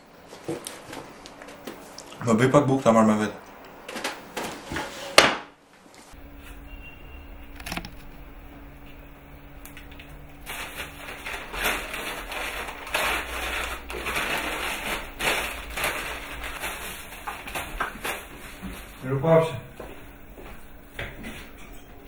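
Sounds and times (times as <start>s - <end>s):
paper and plastic crinkling: 6.2s - 19.2s.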